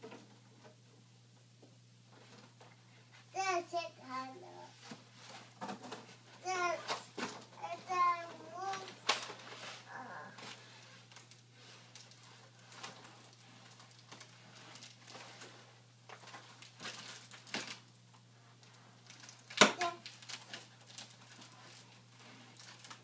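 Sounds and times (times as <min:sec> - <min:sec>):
toy handling clicks and rustles: 0:04.8 - 0:09.7, 0:10.4 - 0:23.0.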